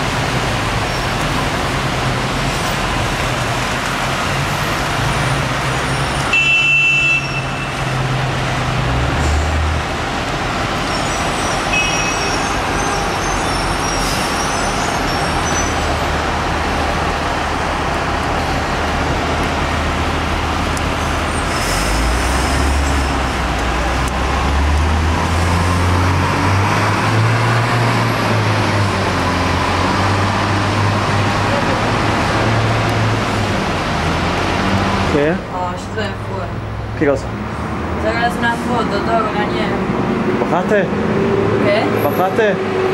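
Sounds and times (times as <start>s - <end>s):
car and bus engines: 0.0s - 42.9s
tyres on wet road: 0.0s - 42.9s
brief high squeal: 10.9s - 15.8s.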